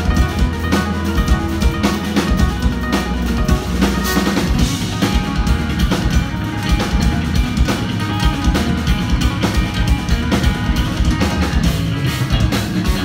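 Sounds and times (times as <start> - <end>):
drum kit hits: 0.0 - 13.0
low guitar notes: 0.0 - 13.0
progressive metal music: 0.0 - 13.0.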